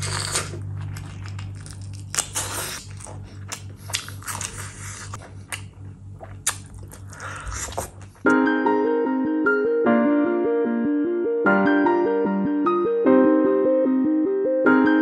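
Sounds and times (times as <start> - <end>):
person chewing and lip smacking: 0.0 - 8.3.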